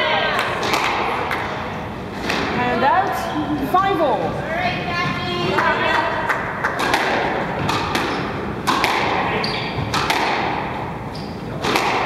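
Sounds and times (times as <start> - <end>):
squash ball hits echoing: 0.1 - 2.8, 5.4 - 12.0
shoe squeak: 9.3 - 9.9, 11.0 - 11.6.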